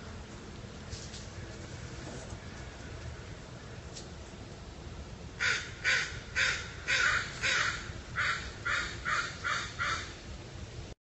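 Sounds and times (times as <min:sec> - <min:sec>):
bird harsh calls: 0:05.4 - 0:10.2.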